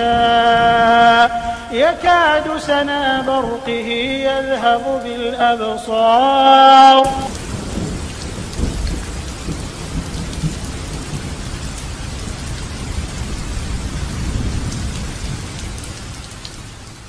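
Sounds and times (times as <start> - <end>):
rain falling: 0.0 - 17.0.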